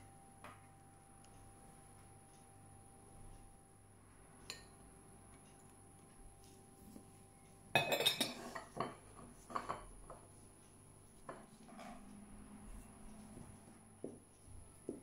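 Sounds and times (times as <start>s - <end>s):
crockery clinking and clattering: 7.7s - 10.3s, 11.3s - 12.1s.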